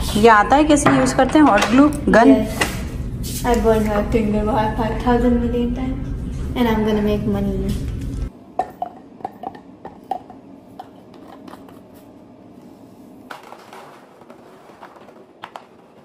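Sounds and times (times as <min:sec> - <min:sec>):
plastic rustling: 0:13.3 - 0:16.0.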